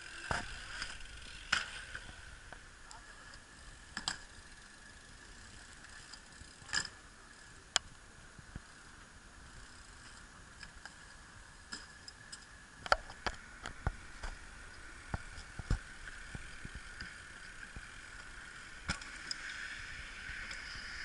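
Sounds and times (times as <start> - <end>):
bicycle freewheel hub ticking: 0.0 - 2.4, 3.4 - 7.6, 8.6 - 10.2.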